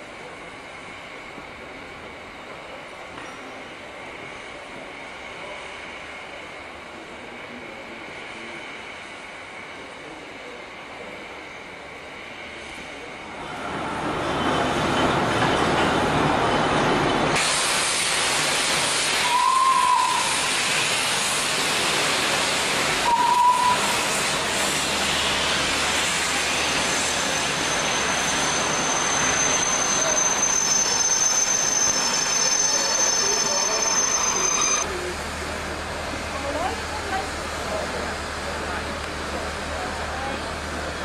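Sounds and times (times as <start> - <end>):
steam locomotive hissing: 0.0 - 41.0
steam whistle notes: 19.2 - 20.5, 23.0 - 24.1.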